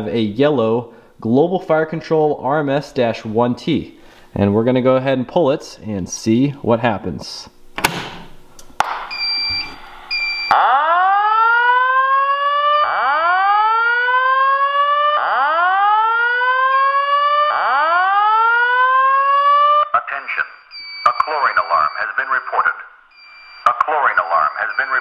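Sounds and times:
short beeps: 9.1s - 10.6s, 20.2s - 25.0s.

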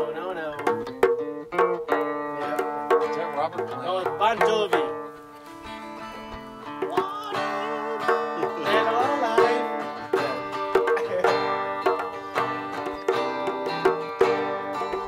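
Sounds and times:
plucked string instrument tune: 0.0s - 15.0s.

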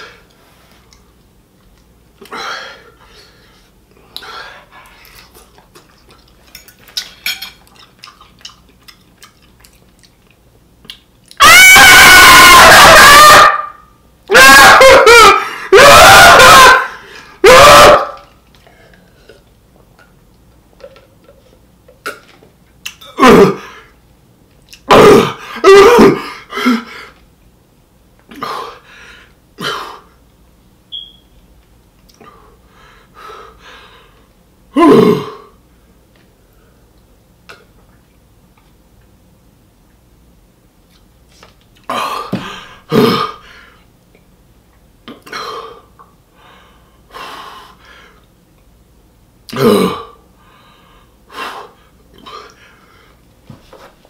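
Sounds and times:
man wailing: 14.3s - 16.8s
man clearing throat: 23.1s - 23.8s, 24.9s - 26.8s, 34.8s - 35.5s, 49.5s - 50.2s.

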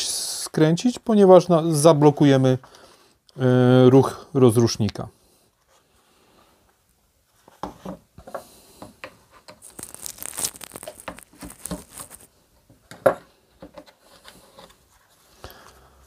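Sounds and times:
scraping rustle: 9.4s - 12.3s
plastic parts clicking and knocking: 12.6s - 14.0s.

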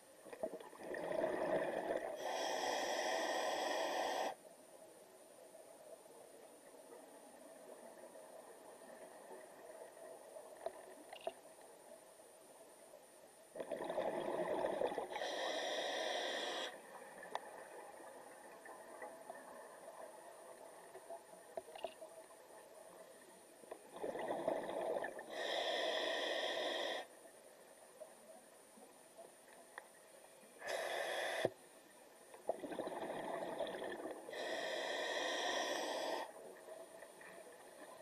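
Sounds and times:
exhaled bubbles burbling: 0.6s - 2.1s, 13.6s - 15.1s, 23.9s - 25.2s, 32.5s - 34.2s
regulator breath hiss: 2.2s - 4.4s, 15.1s - 16.8s, 25.3s - 27.1s, 30.6s - 31.6s, 34.3s - 36.4s
faint clicks and ticks: 16.7s - 23.9s, 27.8s - 30.8s.

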